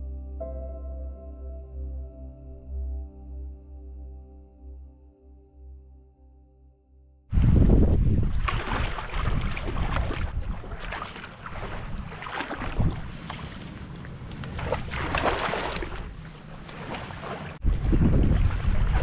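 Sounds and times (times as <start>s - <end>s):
wind buffeting microphone: 7.3s - 19.0s
shallow water splashing: 7.4s - 19.0s.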